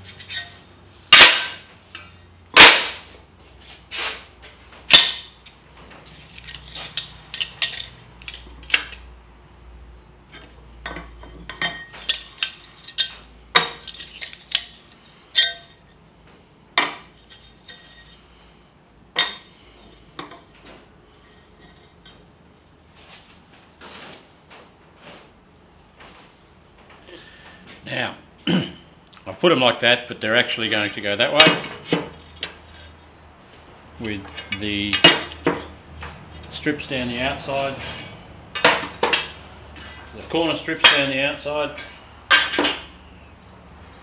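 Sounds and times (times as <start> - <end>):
steel bars clanking together: 0.0 - 3.0, 4.9 - 5.6, 6.4 - 9.0, 10.4 - 15.8, 34.3 - 35.8, 37.4 - 42.9.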